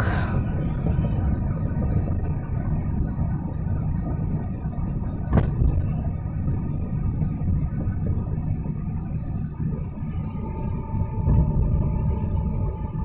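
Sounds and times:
road and engine rumble in car: 0:00.0 - 0:13.0.

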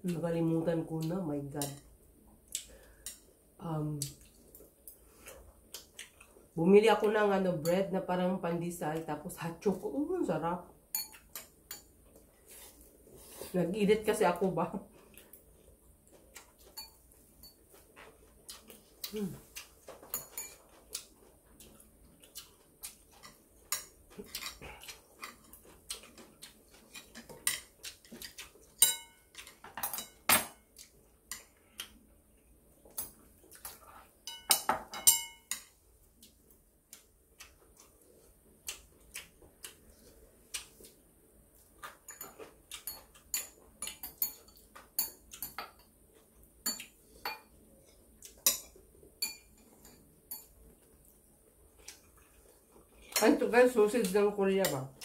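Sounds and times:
cutlery clinking on ceramic bowls: 0:10.9 - 0:11.9, 0:16.7 - 0:17.6, 0:19.9 - 0:20.8, 0:26.9 - 0:30.6, 0:33.6 - 0:35.7, 0:42.0 - 0:45.9, 0:48.4 - 0:50.6.

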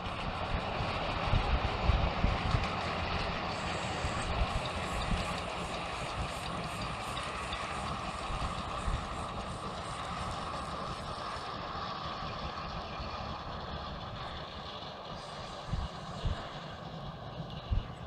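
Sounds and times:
distant miniature train running: 0:00.0 - 0:18.0
wind buffeting microphone: 0:00.0 - 0:18.0.

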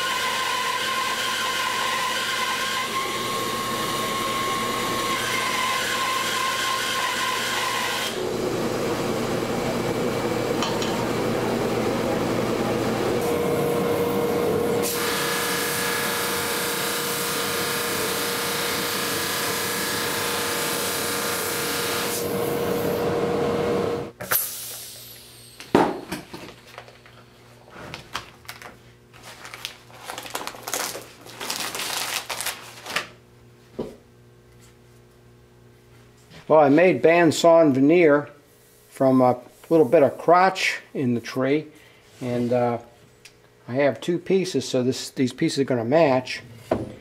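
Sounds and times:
band saw cutting wood: 0:00.0 - 0:08.2, 0:13.2 - 0:23.8
plastic sheeting rustling: 0:28.0 - 0:33.1.

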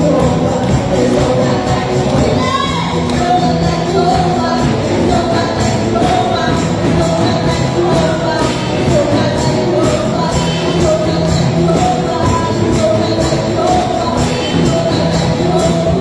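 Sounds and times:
live rock band playing: 0:00.0 - 0:16.0
woman singing: 0:00.0 - 0:16.0.

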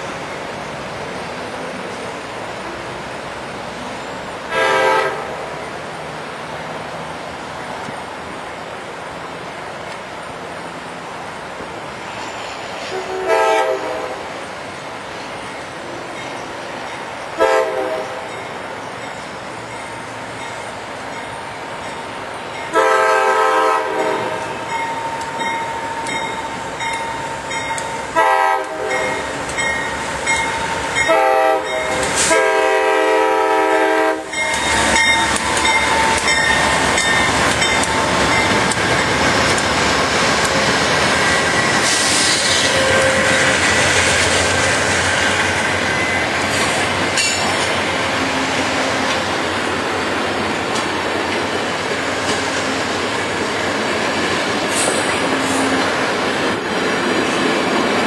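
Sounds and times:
locomotive air horn blasts: 0:04.5 - 0:05.4, 0:12.9 - 0:14.2, 0:17.4 - 0:18.3, 0:22.7 - 0:24.6, 0:28.2 - 0:29.2, 0:31.1 - 0:34.5, 0:42.5 - 0:43.7
train wheels clattering on rails: 0:24.0 - 0:32.6, 0:34.2 - 0:58.0.

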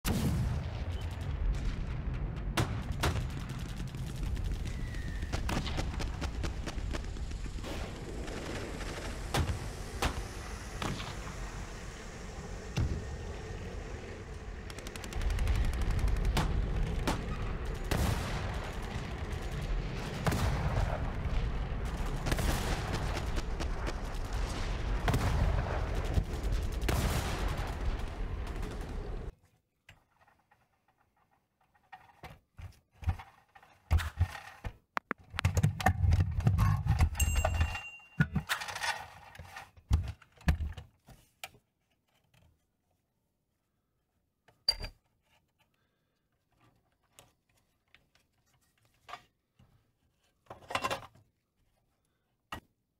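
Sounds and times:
rapid machine-gun fire: 0:02.4 - 0:11.1, 0:14.6 - 0:29.3.

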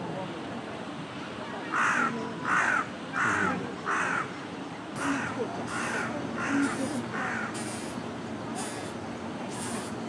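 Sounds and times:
crow cawing: 0:01.7 - 0:04.3, 0:05.0 - 0:07.7.

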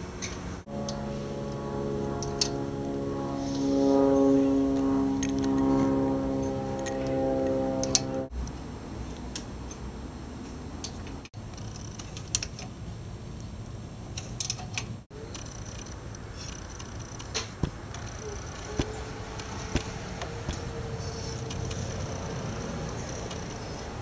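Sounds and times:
small engine running: 0:00.7 - 0:08.3, 0:15.2 - 0:23.9.

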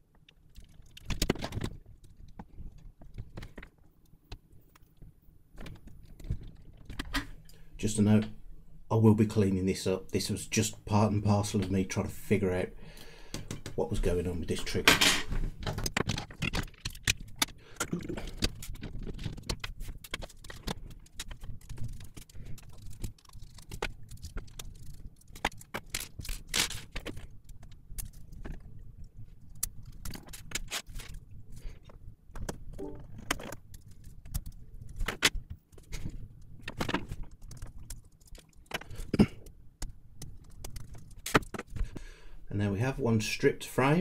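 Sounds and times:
low steady hum: 0:00.0 - 0:41.2
plastic parts clicking and rattling: 0:00.1 - 0:07.6, 0:14.5 - 0:42.0.

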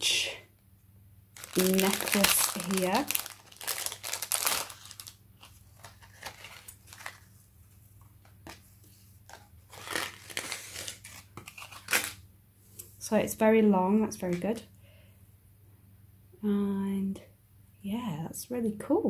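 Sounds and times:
plastic packaging crinkling: 0:01.4 - 0:07.4, 0:09.2 - 0:12.2.

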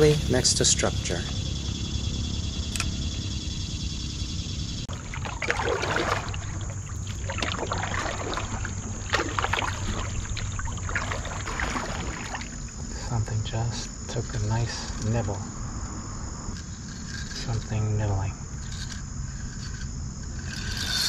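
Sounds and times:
water splashing against canoe hull: 0:04.9 - 0:12.7.

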